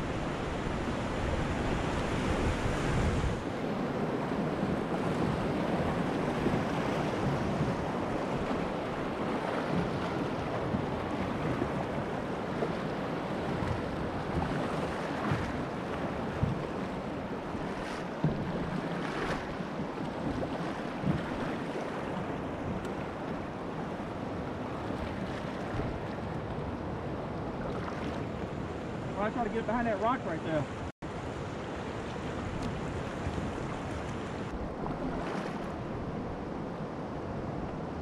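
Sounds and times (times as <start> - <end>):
wind buffeting microphone: 0.0 - 29.2.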